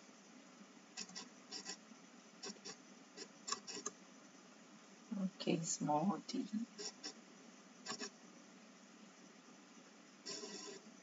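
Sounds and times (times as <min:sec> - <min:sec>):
faint keyboard typing: 0:01.0 - 0:01.8, 0:02.4 - 0:04.0, 0:07.8 - 0:08.1.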